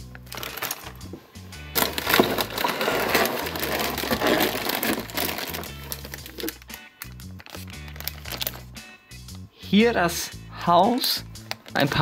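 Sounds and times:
light background music: 0.0 - 12.0
cardboard and plastic crackling: 0.2 - 1.0, 1.8 - 8.6.

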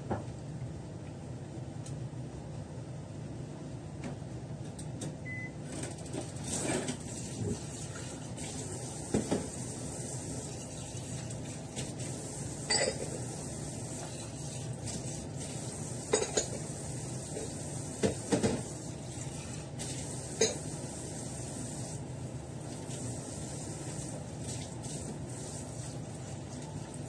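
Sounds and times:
low background hum: 0.0 - 27.0
dishes and utensils clinking: 12.6 - 13.2, 16.1 - 16.6, 20.4 - 20.6.

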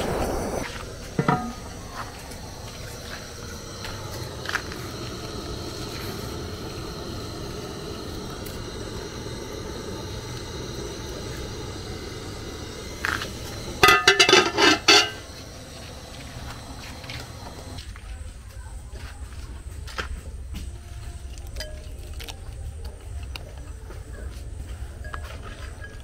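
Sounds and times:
metal lid clanking on pot: 1.2 - 1.7, 13.8 - 15.2.

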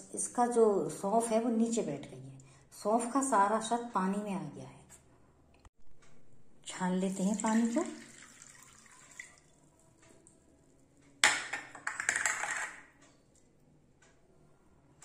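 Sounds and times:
water pouring through strainer: 7.1 - 9.8.

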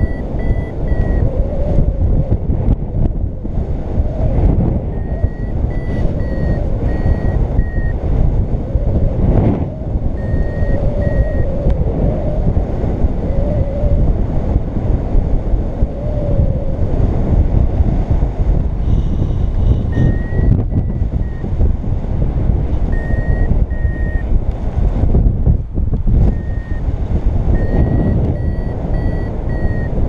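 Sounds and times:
short high beeps: 0.0 - 1.2, 5.0 - 8.0, 10.2 - 11.5, 19.9 - 21.4, 22.9 - 24.2, 26.2 - 26.8, 27.6 - 30.0
wind rumble on microphone: 0.0 - 30.0.

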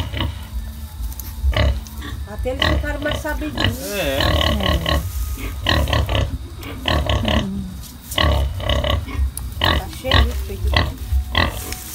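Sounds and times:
pigs grunting: 0.0 - 0.7, 1.4 - 11.9.

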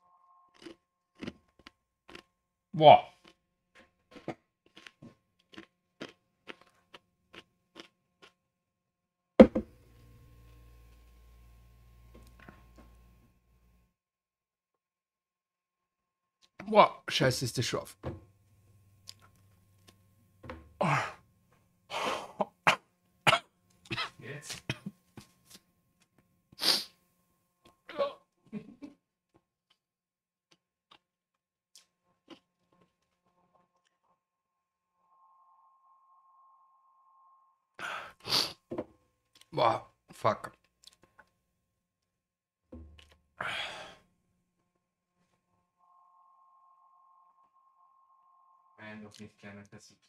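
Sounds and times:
chewing crunchy chip: 0.6 - 2.3, 3.1 - 3.4, 4.6 - 8.4
glass set down on desk: 9.4 - 9.7
man coughing: 20.8 - 21.2, 21.9 - 24.9
man puffing hard breaths: 43.4 - 44.0.

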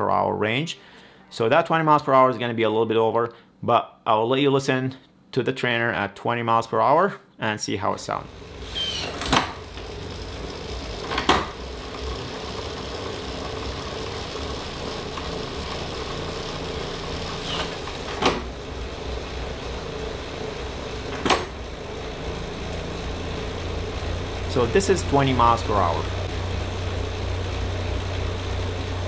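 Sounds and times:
bike trainer flywheel hum: 8.0 - 29.0.

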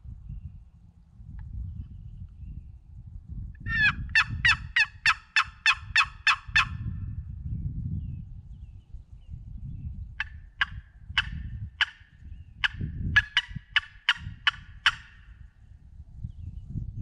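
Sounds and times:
turkey yelping: 3.7 - 6.8, 10.2 - 12.0, 12.6 - 15.2.

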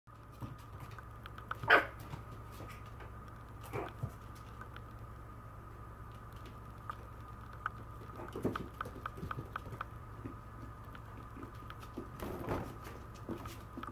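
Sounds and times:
faint steady hum: 0.1 - 13.9
small ticks: 0.8 - 1.7, 3.2 - 5.1, 6.0 - 12.1.

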